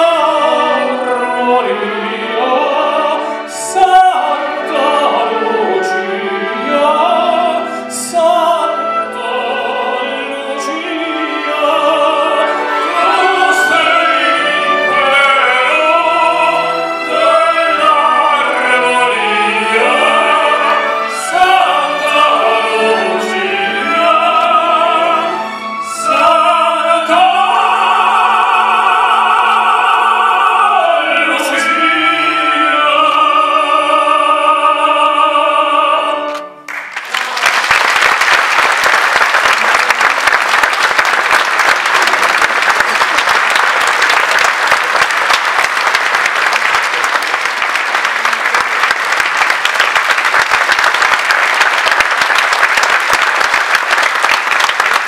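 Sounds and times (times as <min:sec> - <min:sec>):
male operatic voices singing: 0:00.0 - 0:36.6
string orchestra: 0:00.0 - 0:55.0
audience applauding: 0:36.7 - 0:55.0.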